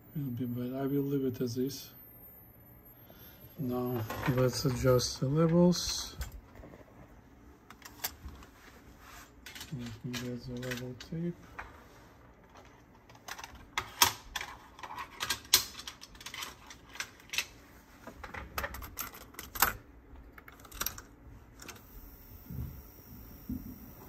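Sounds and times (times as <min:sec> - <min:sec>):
faint high whine: 0:00.0 - 0:07.1, 0:21.6 - 0:24.0.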